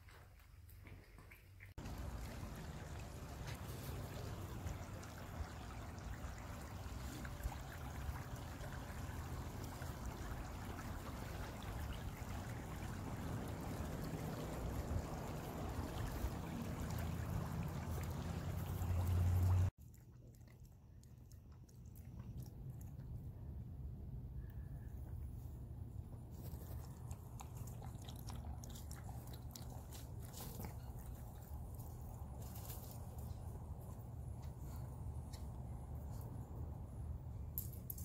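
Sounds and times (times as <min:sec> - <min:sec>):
creek flowing: 0:01.8 - 0:19.7.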